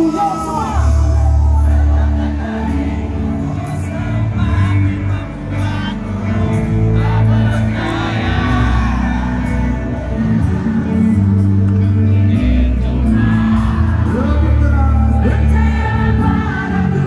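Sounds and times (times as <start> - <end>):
music with singing: 0.0 - 17.0.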